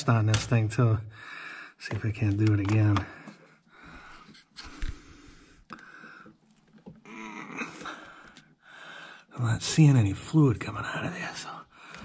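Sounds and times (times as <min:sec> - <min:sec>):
man breathing hard through nose: 0:01.1 - 0:01.8, 0:03.2 - 0:06.4, 0:07.8 - 0:09.3, 0:11.7 - 0:12.0.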